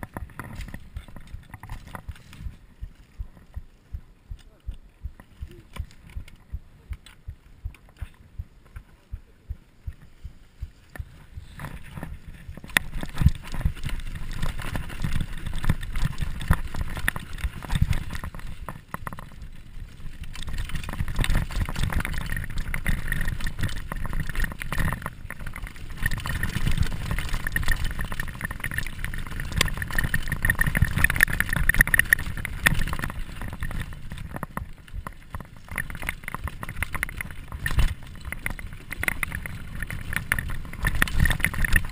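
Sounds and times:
regular clicking: 0:00.0 - 0:19.3
bike rattling and knocking: 0:00.0 - 0:41.9
bike tyres rumbling over dirt: 0:00.0 - 0:41.9.

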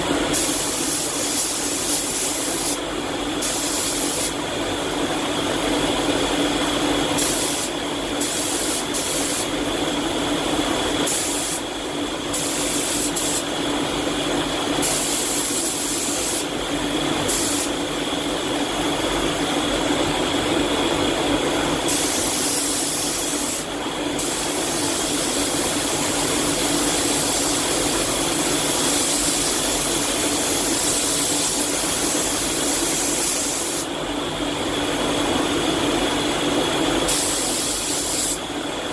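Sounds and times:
spray gun hissing: 0:00.3 - 0:02.8, 0:03.4 - 0:04.4, 0:07.2 - 0:09.5, 0:11.0 - 0:11.6, 0:12.3 - 0:13.5, 0:14.8 - 0:16.5, 0:17.3 - 0:17.7, 0:21.9 - 0:25.7, 0:28.6 - 0:33.9, 0:37.1 - 0:38.4.

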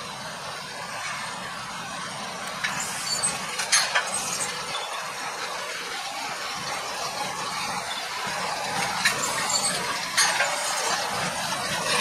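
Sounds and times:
tractor running: 0:00.0 - 0:12.0
metallic clinks and squeaks: 0:02.7 - 0:05.0, 0:09.1 - 0:10.9.

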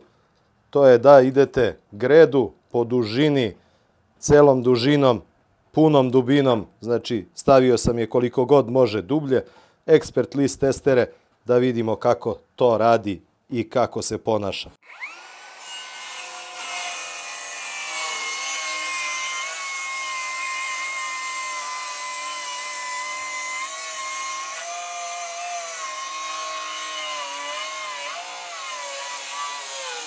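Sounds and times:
circular saw cutting wood: 0:14.8 - 0:30.0.

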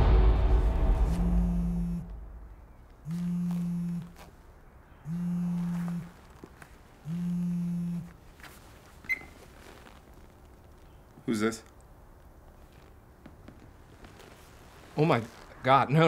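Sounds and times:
phone buzzing on vibrate: 0:01.1 - 0:02.1, 0:03.0 - 0:04.3, 0:05.0 - 0:06.4, 0:07.0 - 0:08.2.

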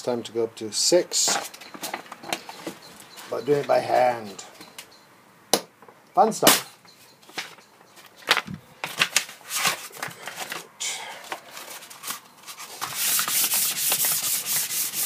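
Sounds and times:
sandpaper sanding wood: 0:12.6 - 0:15.0.

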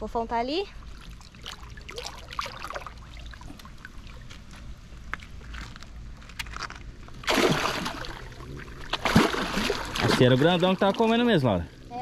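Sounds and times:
faint trickling water: 0:00.1 - 0:05.5
loud water splash: 0:07.2 - 0:11.1.

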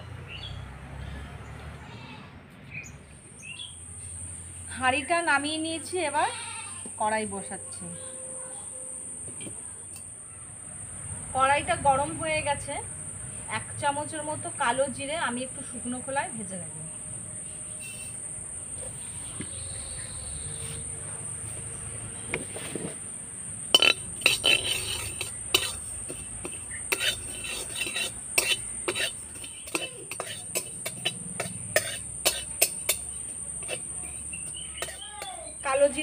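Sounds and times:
metal spatula scraping metal pan: 0:17.8 - 0:18.2, 0:23.7 - 0:35.0
insects shrilling: 0:22.9 - 0:36.0.

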